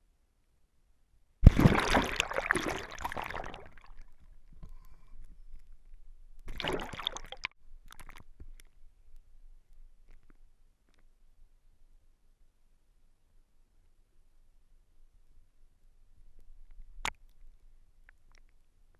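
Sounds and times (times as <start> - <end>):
water splashing and sloshing: 1.4 - 4.3, 6.5 - 8.7.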